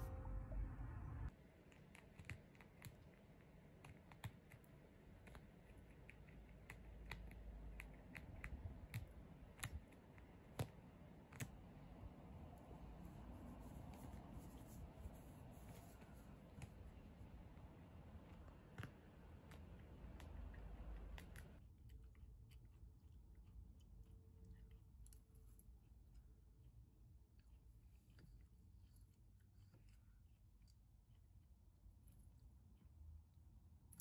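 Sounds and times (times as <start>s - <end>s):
teeth gnawing at cloth: 1.7s - 11.7s.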